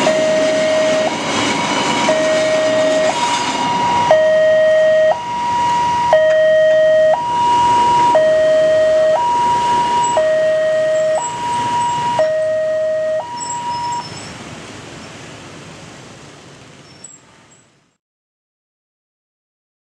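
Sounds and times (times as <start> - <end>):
two-tone crossing alarm: 0.0 - 1.4, 2.0 - 14.1
motorcycle traffic: 0.0 - 17.6.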